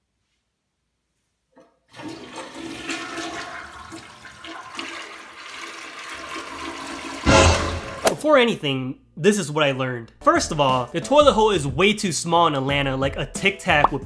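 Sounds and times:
toilet water rushing: 0:01.9 - 0:08.1.

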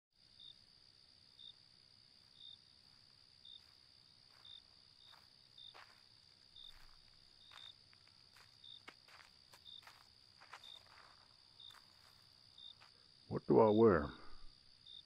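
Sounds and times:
crickets chirping: 0:00.2 - 0:15.0
faint soft scuffs: 0:03.6 - 0:13.0.

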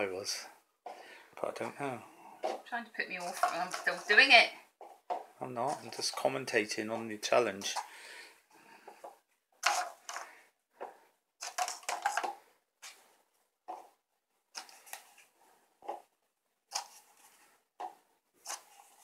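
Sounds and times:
paper cups knocking on wooden table: 0:08.9 - 0:12.5.

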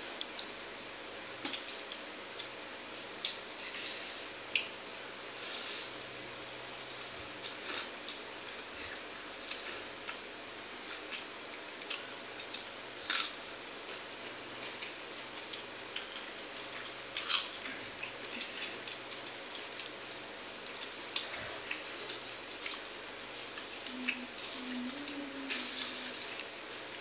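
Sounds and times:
steady background hum: 0:00.0 - 0:27.0
chewing: 0:06.8 - 0:27.0.

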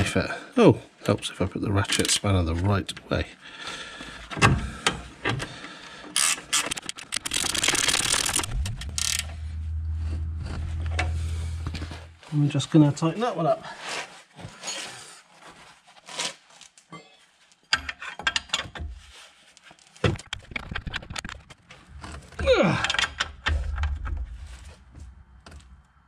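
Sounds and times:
ratchet spanner clicking: 0:06.2 - 0:09.4
loud sound sliding down in pitch: 0:07.3 - 0:12.4.

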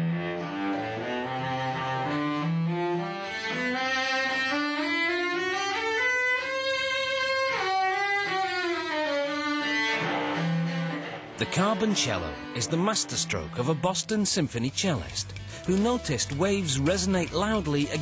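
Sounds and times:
cello slow bowed melody: 0:00.0 - 0:14.4.

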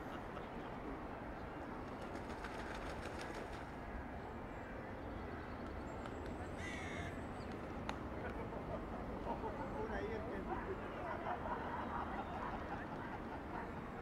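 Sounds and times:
low rumble of traffic: 0:00.0 - 0:14.0
light ticks: 0:07.5 - 0:08.4.

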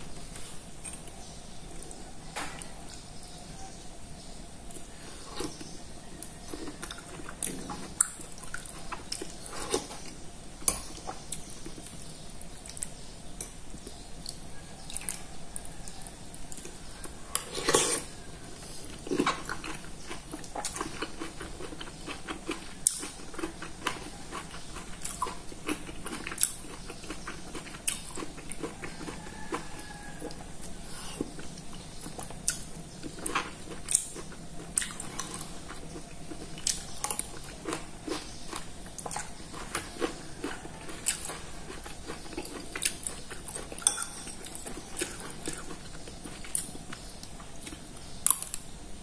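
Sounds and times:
person chewing: 0:04.7 - 0:48.7
spoon clinking in ceramic bowl: 0:43.8 - 0:44.4.

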